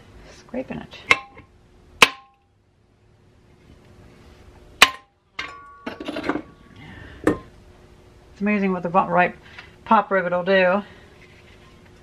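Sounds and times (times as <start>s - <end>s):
tool and parts clattering: 4.8s - 6.5s.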